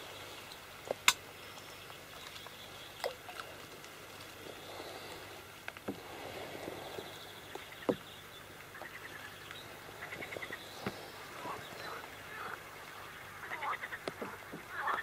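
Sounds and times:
frogs trilling: 0:06.7 - 0:15.0.

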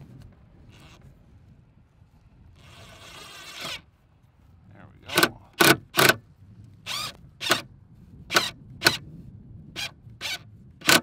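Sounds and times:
cordless drill motor whines: 0:06.8 - 0:07.7, 0:08.3 - 0:09.0, 0:09.8 - 0:11.0.

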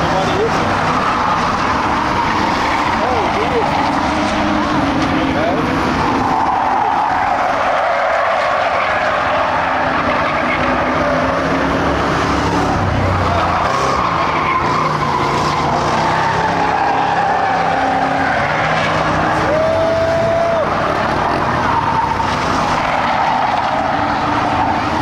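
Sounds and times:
race car engines running hard: 0:00.0 - 0:25.0.

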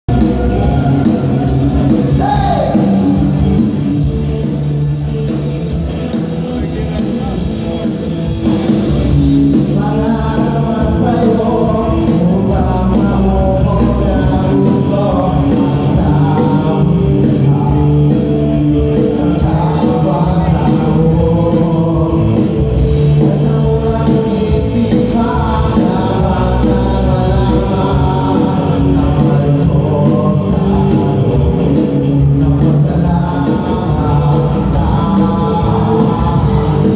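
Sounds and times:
bass and drum beat: 0:00.0 - 0:36.9
live band playing dance music: 0:00.1 - 0:36.9
person singing: 0:00.1 - 0:36.9.

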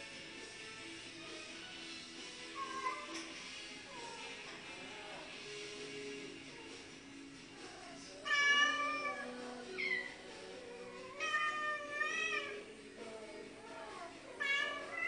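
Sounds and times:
quiet background music: 0:00.0 - 0:15.0
cat mating calls: 0:07.8 - 0:12.7, 0:13.7 - 0:15.0.

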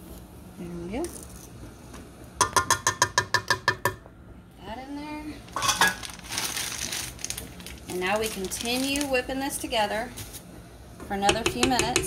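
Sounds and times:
plastic bag crinkling: 0:05.4 - 0:09.3
cup clinking on metal bowl: 0:05.6 - 0:06.0.

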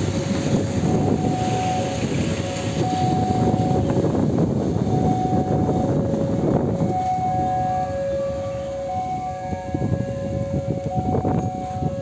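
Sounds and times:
steady low rumble: 0:00.0 - 0:12.0
two-tone crossing alarm: 0:00.0 - 0:12.0.

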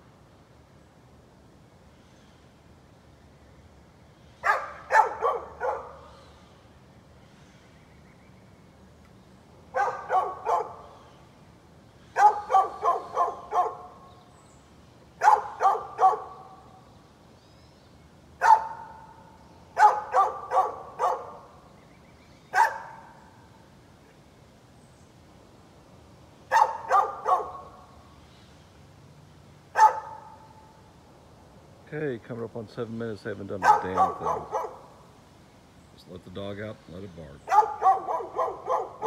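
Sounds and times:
dog barking: 0:04.4 - 0:06.1, 0:09.7 - 0:10.8, 0:12.2 - 0:14.0, 0:15.2 - 0:16.5, 0:18.4 - 0:19.2, 0:19.8 - 0:21.5, 0:22.6 - 0:23.2, 0:26.5 - 0:27.7, 0:29.8 - 0:30.4, 0:33.6 - 0:34.9, 0:37.5 - 0:39.0.

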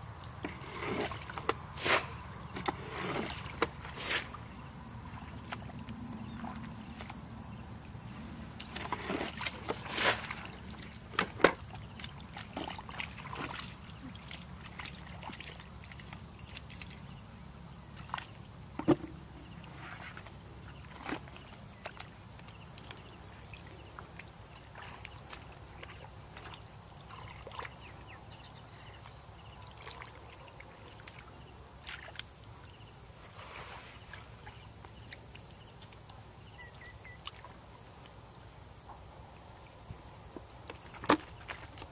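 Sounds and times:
hands splashing in muddy puddle: 0:08.6 - 0:10.9.

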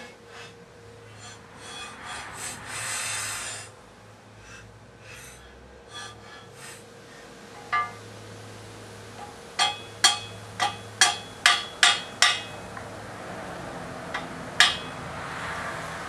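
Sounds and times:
metal pipe scraping against vise: 0:00.0 - 0:03.6, 0:05.9 - 0:06.8, 0:07.6 - 0:08.1, 0:09.2 - 0:12.9, 0:14.1 - 0:15.0
steady low hum: 0:00.0 - 0:16.0.

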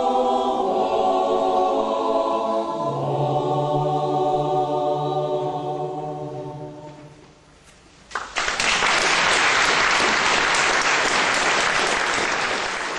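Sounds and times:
choir holding final chord: 0:00.0 - 0:07.2
audience applause: 0:08.2 - 0:12.9.

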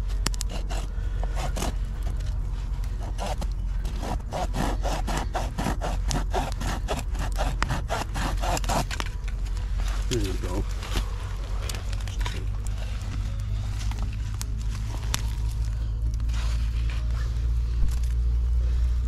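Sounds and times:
low steady hum: 0:00.0 - 0:19.0
hand saw cutting wood: 0:00.4 - 0:01.8, 0:03.0 - 0:09.0.

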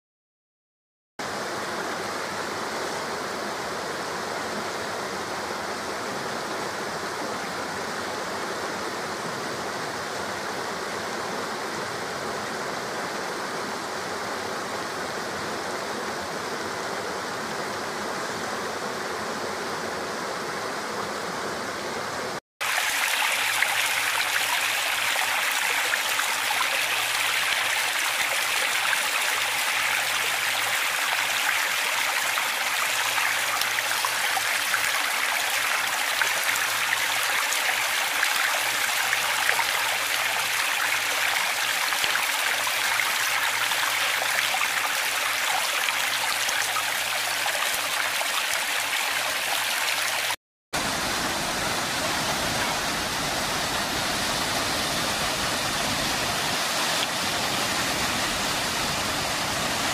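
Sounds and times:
stream rushing over rocks: 0:01.2 - 0:59.9
waterfall splashing: 0:22.6 - 0:59.9.

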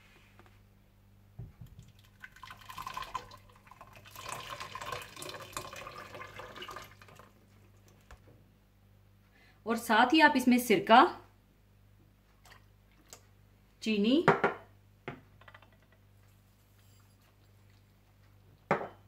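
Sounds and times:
thick liquid pouring and splashing: 0:01.6 - 0:08.0.

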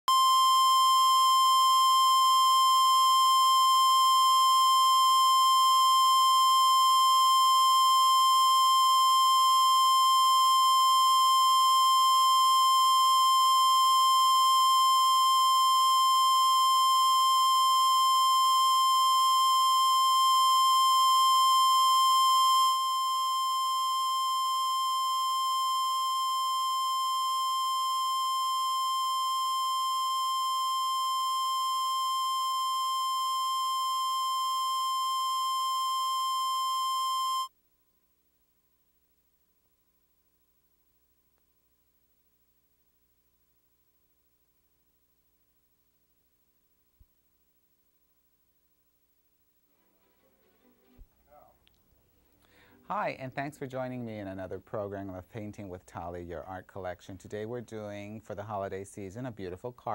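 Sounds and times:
steady test tone: 0:00.1 - 0:37.5.

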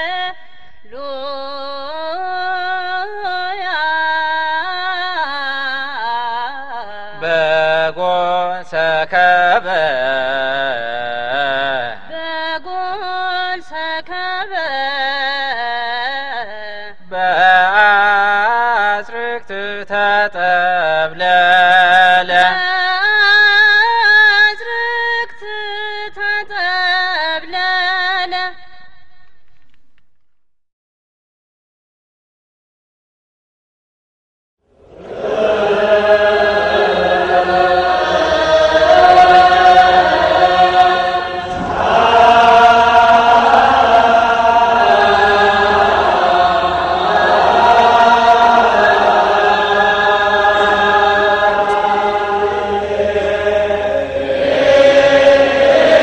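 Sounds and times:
woman singing a hymn: 0:00.0 - 0:08.1, 0:12.1 - 0:19.2, 0:21.2 - 0:28.8
lower voices singing: 0:00.9 - 0:16.5, 0:17.1 - 0:27.7, 0:34.8 - 0:56.0.

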